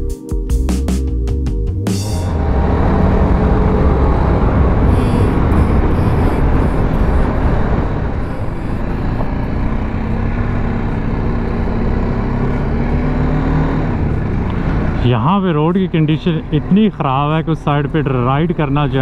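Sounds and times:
motorcycle engine running: 1.9 - 19.0
road noise: 2.0 - 19.0
wind noise: 2.2 - 11.4.

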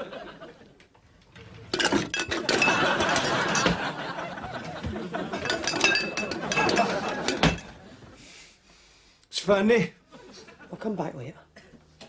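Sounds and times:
glass bottles clinking: 1.7 - 4.1, 5.2 - 7.9.

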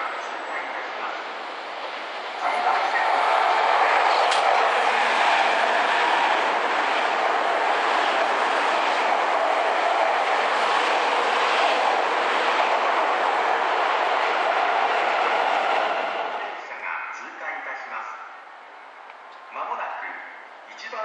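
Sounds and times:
train wheels on rails: 1.0 - 16.6.

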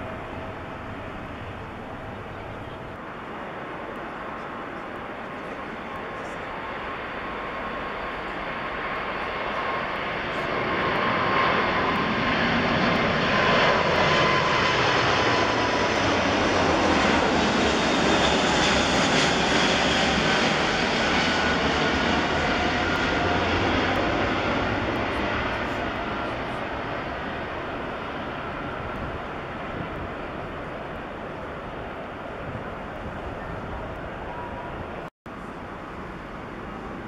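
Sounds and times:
jet engines roaring: 0.0 - 37.0.

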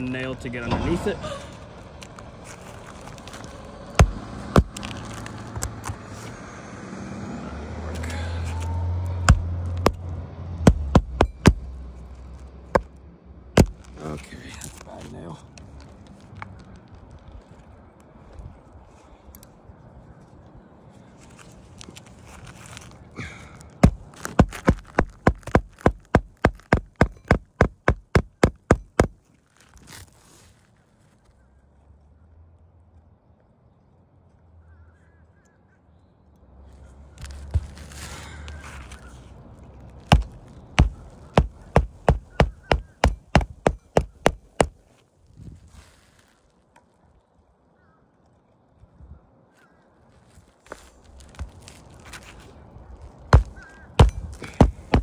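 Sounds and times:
hammer driving a nail: 10.6 - 11.7, 13.6 - 13.8, 23.8 - 29.2, 40.1 - 44.8, 53.4 - 55.0.

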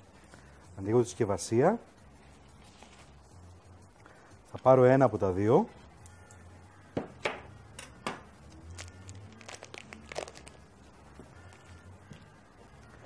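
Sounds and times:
plastic wrapping crinkling: 8.5 - 12.3.

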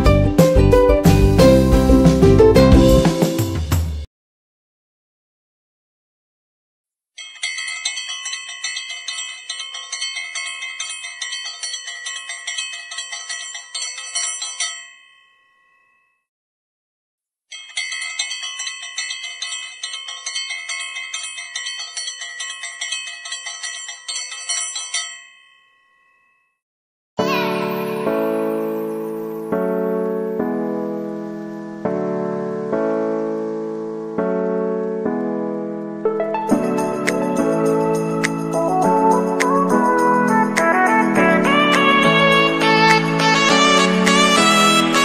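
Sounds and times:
small hand bell ringing: 7.2 - 16.3, 17.5 - 26.6.

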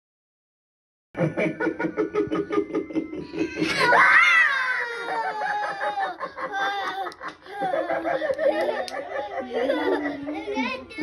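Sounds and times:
animatronic clown laughing: 1.2 - 10.5
high shriek-laugh: 3.2 - 6.2.

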